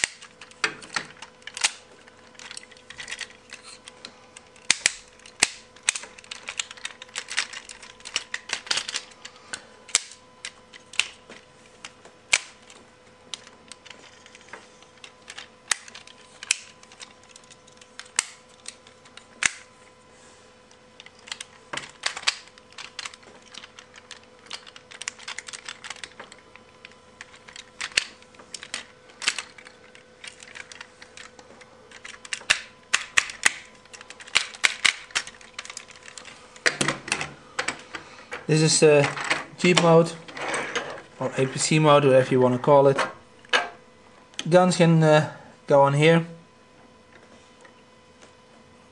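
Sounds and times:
plastic toy parts clicking: 0.0s - 3.8s, 4.5s - 9.2s, 21.0s - 31.3s, 31.9s - 36.3s.

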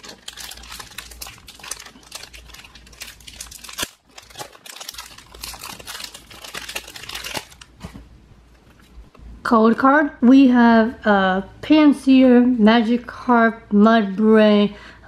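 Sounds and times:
foil wrapper crinkling: 0.0s - 8.0s.

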